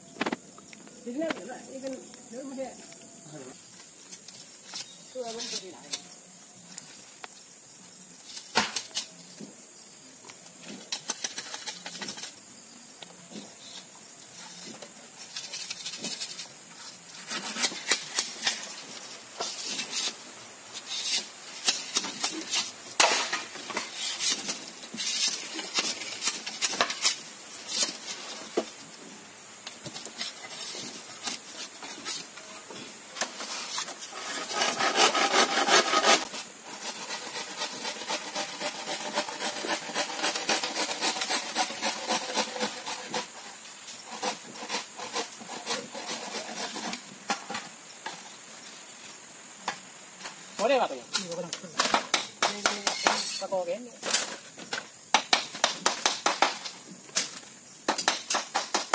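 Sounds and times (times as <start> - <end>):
knife scraping bamboo: 13.4 - 28.7, 29.6 - 48.4.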